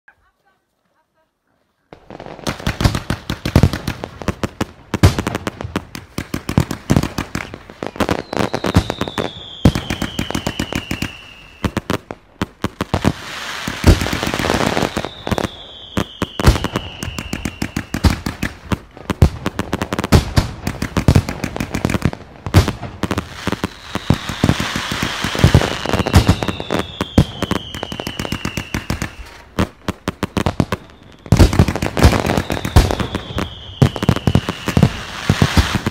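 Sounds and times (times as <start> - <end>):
firework crackling: 2.0 - 35.9
firework whistles falling: 7.4 - 11.8, 13.2 - 18.2, 23.4 - 29.5, 30.3 - 35.9.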